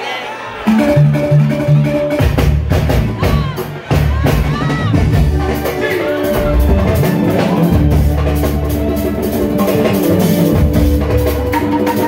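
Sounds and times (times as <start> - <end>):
live band playing dance music: 0.4 - 12.0
drums: 0.6 - 12.0
heavy bass line: 0.7 - 11.8
electric guitar: 4.9 - 12.0.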